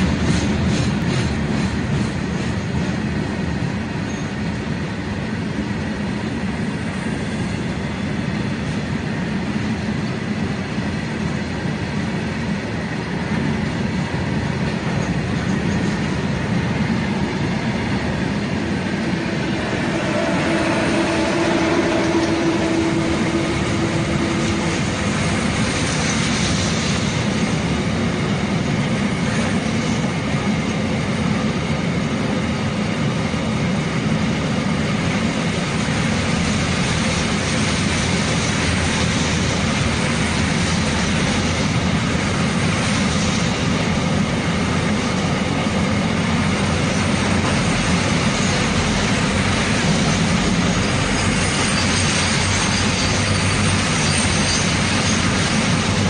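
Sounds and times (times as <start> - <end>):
freight train wheels rumbling: 0.0 - 56.0
thin whine: 16.8 - 27.7.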